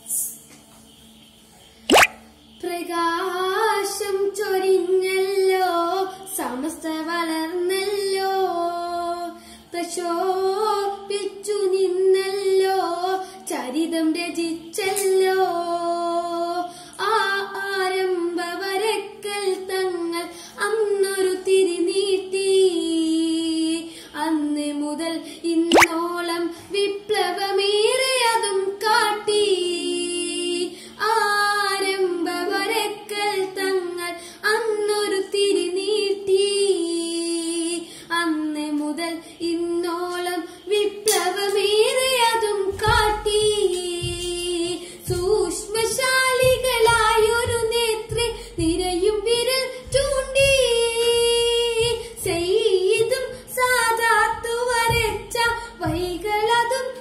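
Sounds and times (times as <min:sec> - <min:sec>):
boy singing: 0:39.4 - 0:57.0
low thuds: 0:45.1 - 0:53.3.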